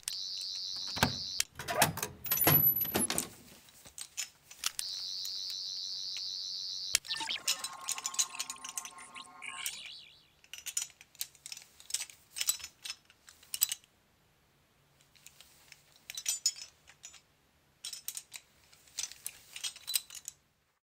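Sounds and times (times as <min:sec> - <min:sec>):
shimmering chime sweep: 0:06.0 - 0:10.4.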